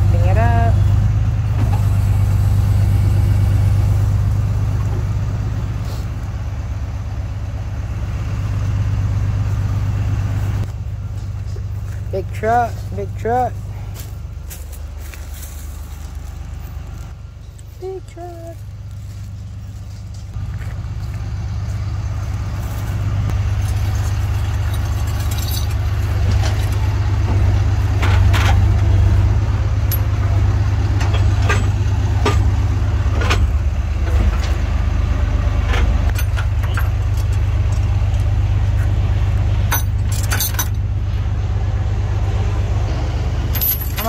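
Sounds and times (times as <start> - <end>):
truck engine idling: 0.0 - 44.0
steel chains clinking: 23.3 - 26.9, 39.7 - 40.8, 43.5 - 44.0.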